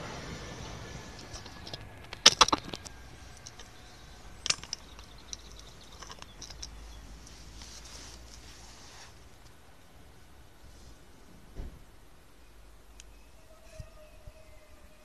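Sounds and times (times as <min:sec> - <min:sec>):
train rumble: 0:00.0 - 0:15.0.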